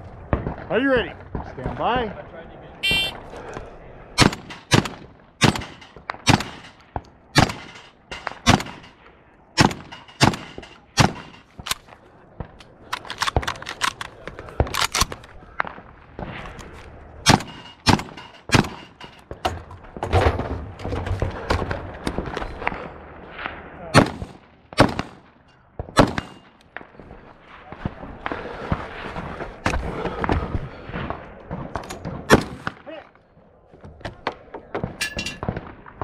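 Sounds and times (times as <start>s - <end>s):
shotgun shots: 4.2s - 9.0s, 9.6s - 11.7s, 17.2s - 19.0s, 23.9s - 26.5s, 31.7s - 32.8s.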